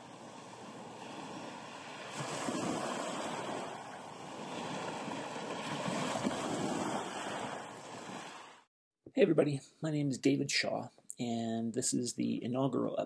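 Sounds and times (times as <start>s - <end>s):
waves washing on pebbles: 0.0s - 8.6s.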